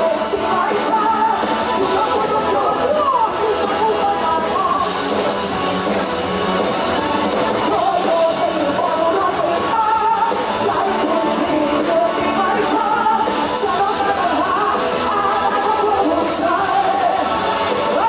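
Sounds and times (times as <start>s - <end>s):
woman singing into microphone: 0.0s - 5.0s, 7.6s - 18.0s
band accompaniment: 0.0s - 18.0s.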